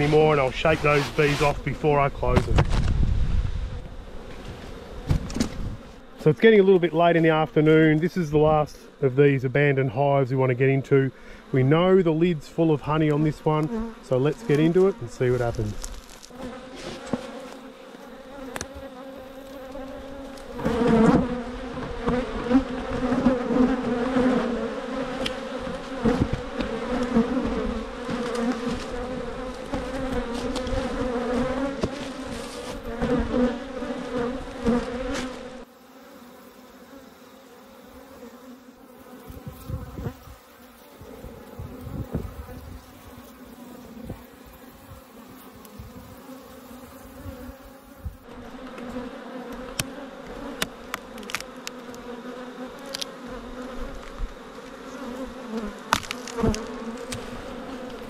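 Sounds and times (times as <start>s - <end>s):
honeybees buzzing: 0.0s - 58.0s
hive tool knocks and clicks: 55.8s - 58.0s.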